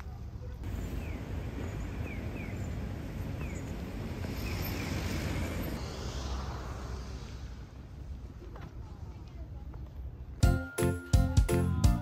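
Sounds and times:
vehicle passing: 0:00.7 - 0:08.4.

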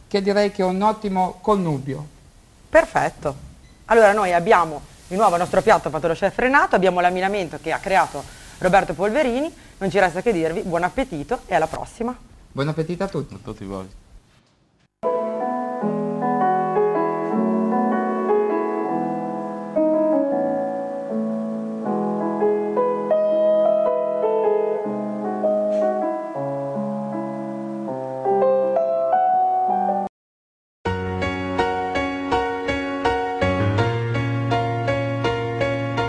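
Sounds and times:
background piano music: 0:15.0 - 0:30.1, 0:30.9 - 0:36.0.

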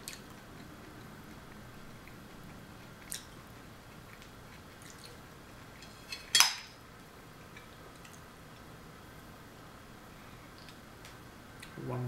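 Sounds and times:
metal fork clinking on ceramic plate: 0:05.8 - 0:06.7.

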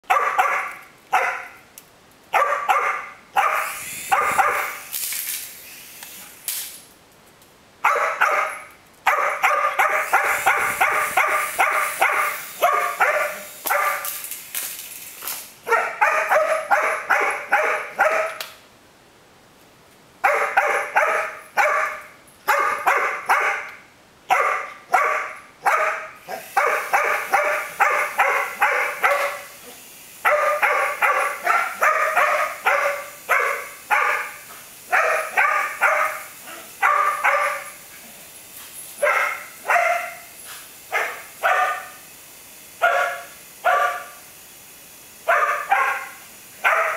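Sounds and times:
small dog barking: 0:00.1 - 0:01.6, 0:02.3 - 0:04.8, 0:07.8 - 0:14.2, 0:15.7 - 0:18.4, 0:20.2 - 0:37.8, 0:39.0 - 0:40.3, 0:40.9 - 0:42.0, 0:42.8 - 0:44.2, 0:45.2 - 0:46.9.

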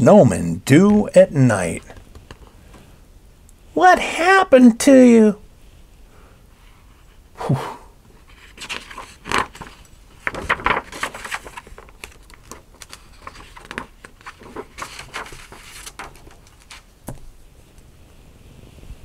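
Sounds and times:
book pages rustling and flapping: 0:01.7 - 0:02.8, 0:08.1 - 0:17.9.

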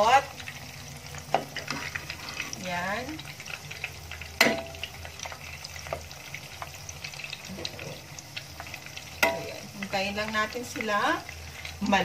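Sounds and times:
spring rolls sizzling in oil: 0:00.0 - 0:12.0
metal spoon clinking on pan: 0:04.4 - 0:04.8, 0:09.2 - 0:09.6.

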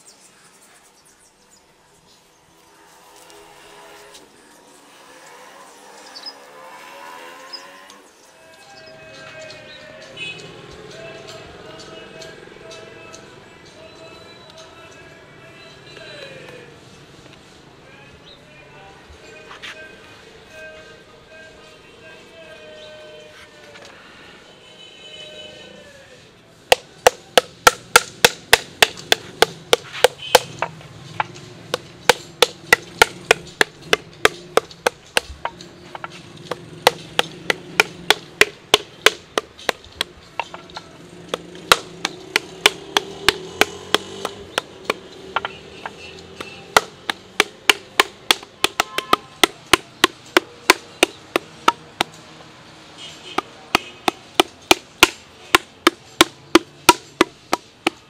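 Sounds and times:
paddle slapping clay pot: 0:26.7 - 0:52.2, 0:53.4 - 0:58.0.

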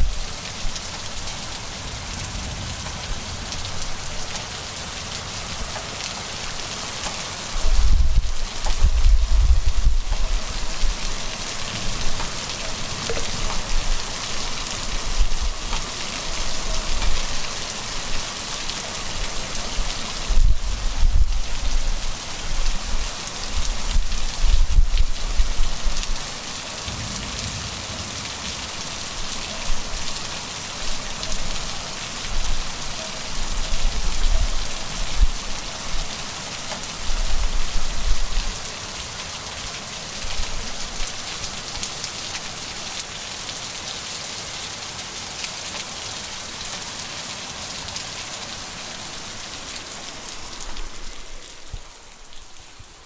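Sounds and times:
heavy rain falling: 0:00.0 - 0:53.0
low rumbles: 0:07.6 - 0:15.9.

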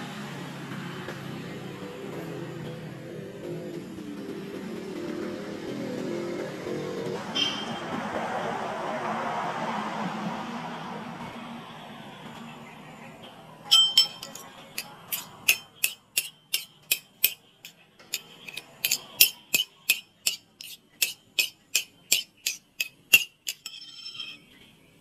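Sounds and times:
spoon beating eggs in bowl: 0:14.0 - 0:23.8.

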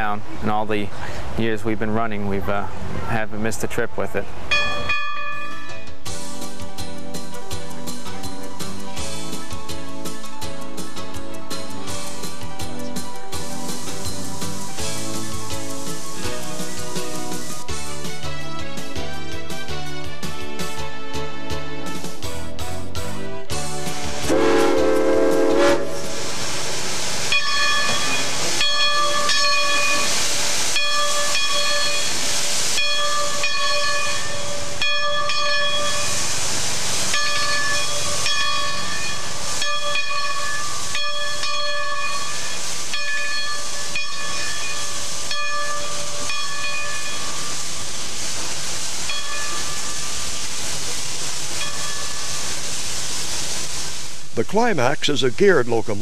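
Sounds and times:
steam hissing with whistling tone: 0:24.0 - 0:54.4
steam whistle: 0:24.2 - 0:26.4.

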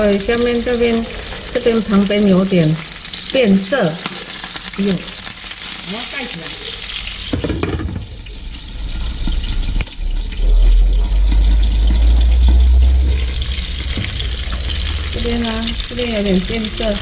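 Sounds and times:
fish sizzling in oil: 0:00.0 - 0:17.0
loud low rumble: 0:08.0 - 0:17.0.

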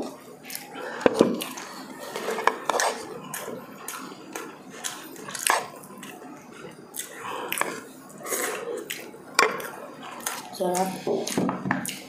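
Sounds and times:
wet chewing and lip smacks: 0:03.3 - 0:12.0.

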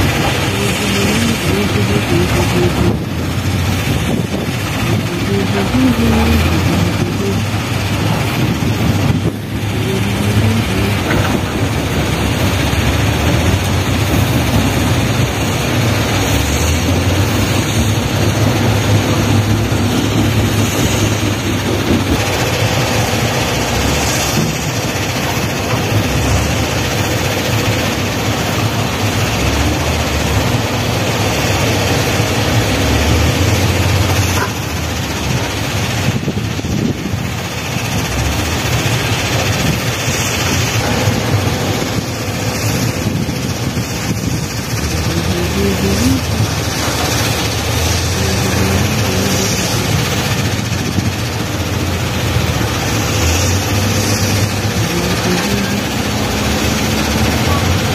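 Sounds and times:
diesel engines running: 0:00.0 - 0:57.9
soil being loaded: 0:00.0 - 0:57.9.

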